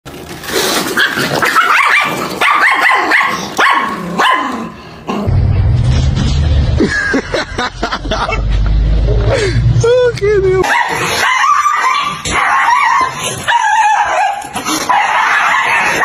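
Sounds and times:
small dog yapping and barking: 1.0s - 4.6s, 10.6s - 16.0s.

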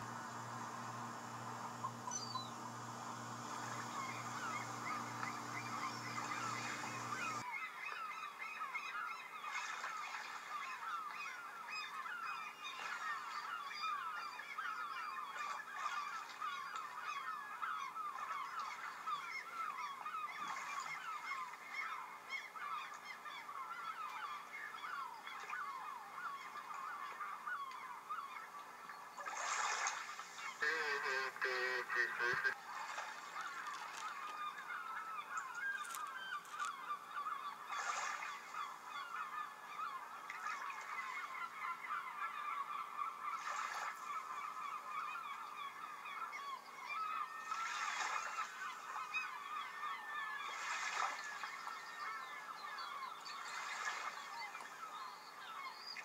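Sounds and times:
geese honking: 0.0s - 7.4s, 30.6s - 32.6s
chorus of birds calling: 0.0s - 32.6s, 33.2s - 56.0s.

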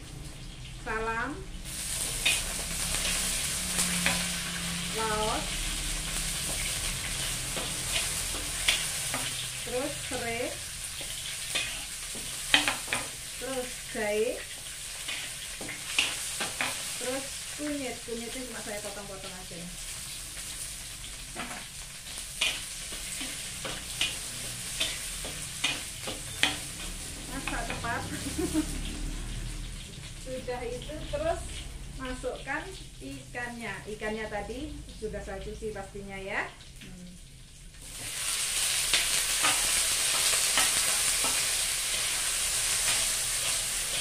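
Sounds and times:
spices sizzling in a wok: 0.0s - 44.0s
metal spatula scraping and clinking: 11.0s - 13.1s, 22.4s - 27.0s, 38.9s - 44.0s.

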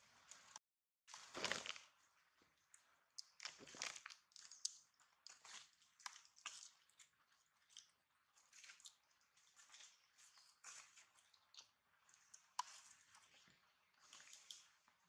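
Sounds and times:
dry leaves and plastic rustling: 1.1s - 1.9s.

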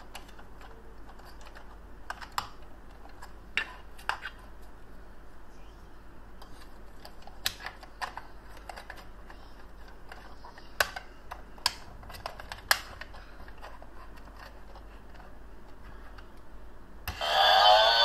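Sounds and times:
hard plastic clicks and snaps: 7.0s - 13.2s.

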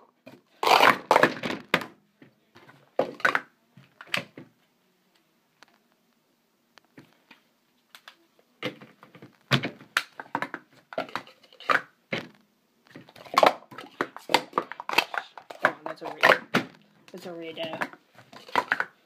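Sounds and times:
plastic cups clacking: 0.6s - 1.9s, 3.0s - 3.5s, 8.6s - 19.0s.

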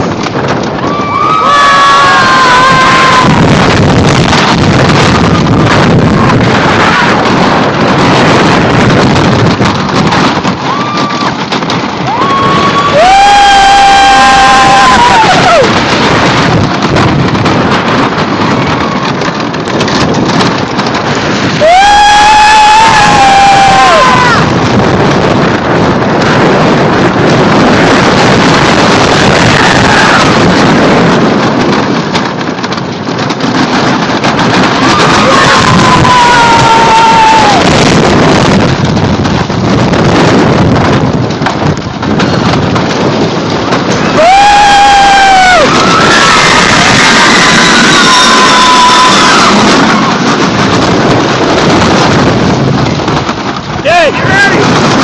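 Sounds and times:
roller coaster wheels clattering: 0.0s - 55.0s
wind on microphone: 0.0s - 55.0s
riders screaming: 0.8s - 8.8s, 10.2s - 26.4s, 27.8s - 31.2s, 33.8s - 38.8s, 42.4s - 52.2s, 53.8s - 55.0s.

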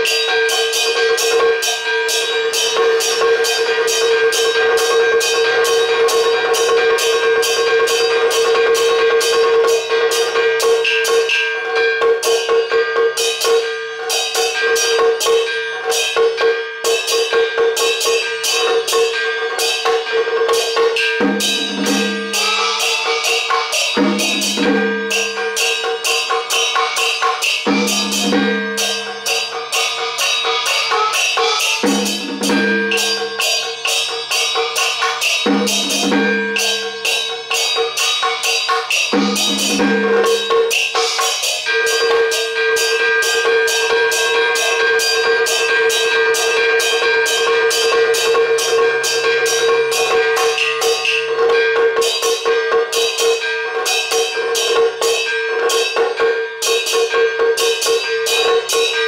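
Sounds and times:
fast percussion strokes: 0.0s - 59.0s.

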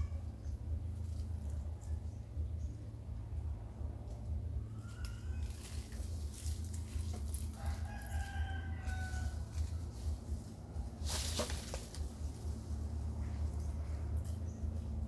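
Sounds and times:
dry leaves rustling: 0.0s - 2.4s, 4.0s - 15.0s
rooster crowing: 7.5s - 9.9s.

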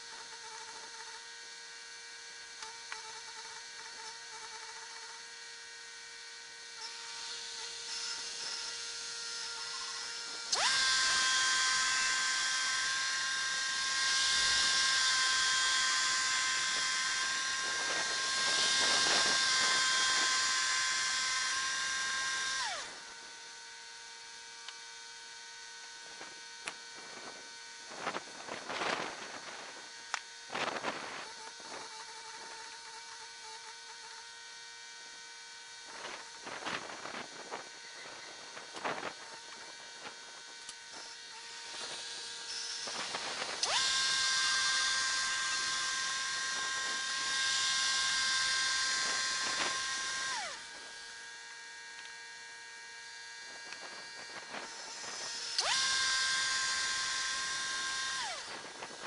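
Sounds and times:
band saw cutting log: 0.0s - 59.0s
sawmill humming: 0.0s - 59.0s.

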